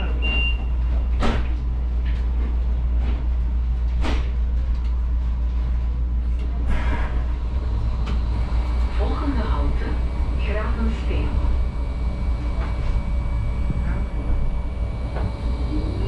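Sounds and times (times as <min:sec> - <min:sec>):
tram hum: 0:00.0 - 0:16.0.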